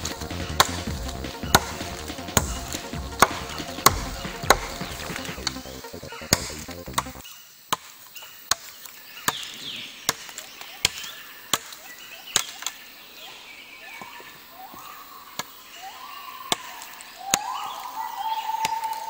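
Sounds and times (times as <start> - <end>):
machete chopping wood: 0.0 - 5.6, 6.2 - 12.8.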